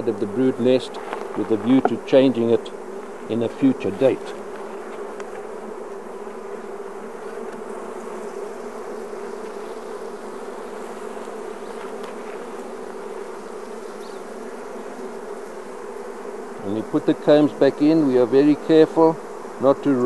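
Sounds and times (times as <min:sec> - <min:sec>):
honeybees buzzing: 0:00.0 - 0:20.0.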